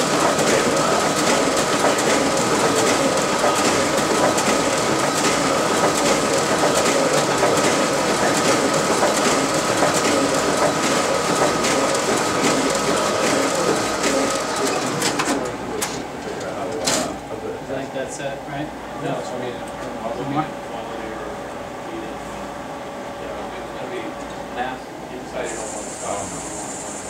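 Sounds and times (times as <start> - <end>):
printer mechanical clatter: 0.0 - 17.2
printer whine: 0.0 - 27.0.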